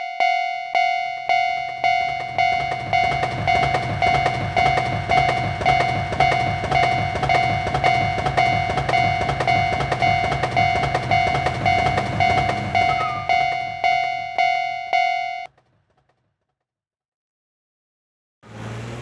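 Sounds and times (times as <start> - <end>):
crossing warning bell clanging: 0.0 - 15.5
electric train rumbling past: 1.7 - 15.2.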